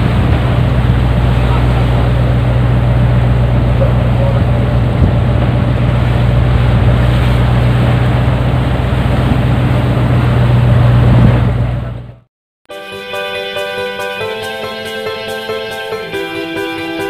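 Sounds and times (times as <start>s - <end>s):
rushing sea: 0.0s - 12.2s, 13.2s - 17.0s
boat engine drone: 0.0s - 12.3s, 13.4s - 17.0s
wind: 0.0s - 12.3s.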